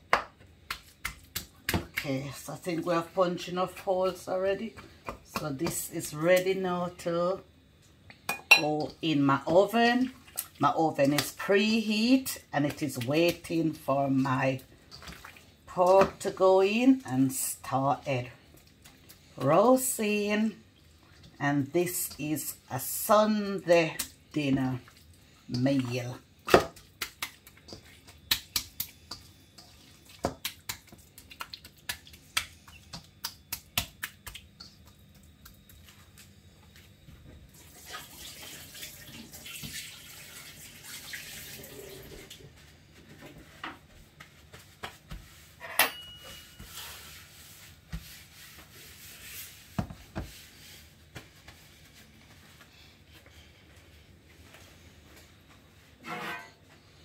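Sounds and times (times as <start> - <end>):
hands squelching raw meat: 26.4 - 36.3
tap water running: 37.5 - 42.5.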